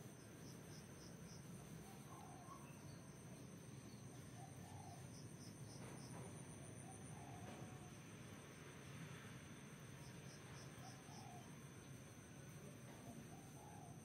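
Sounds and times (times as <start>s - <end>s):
high insect trill: 0.0s - 14.0s
low background hum: 0.0s - 14.0s
distant bird calls: 1.7s - 7.9s, 10.6s - 11.6s.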